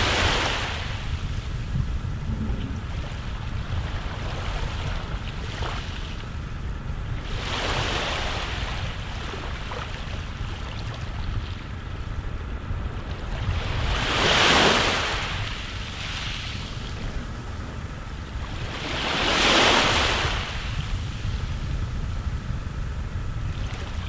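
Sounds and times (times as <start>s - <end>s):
sea waves washing in: 0.0s - 6.5s
low wind rumble: 0.0s - 24.0s.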